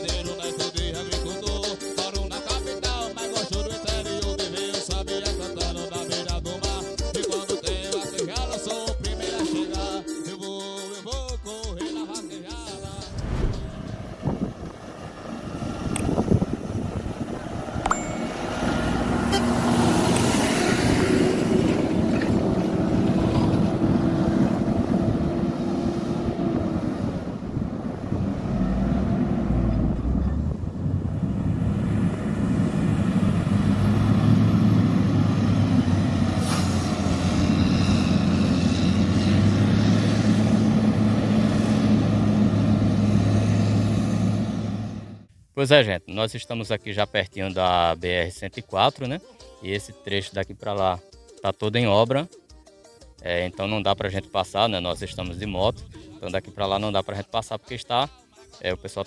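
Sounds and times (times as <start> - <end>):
wind and road noise: 12.7 - 45.5, 54.9 - 56.2.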